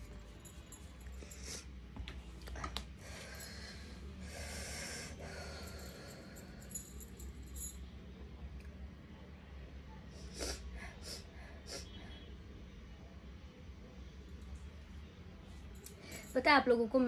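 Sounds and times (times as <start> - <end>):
person sniffing and breathing: 3.0 - 6.8.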